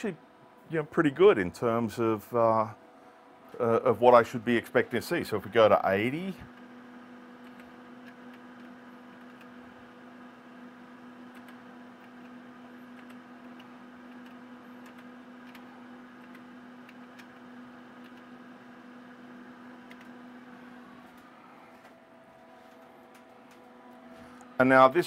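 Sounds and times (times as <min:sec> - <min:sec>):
electronic instruments humming: 0:00.0 - 0:25.0.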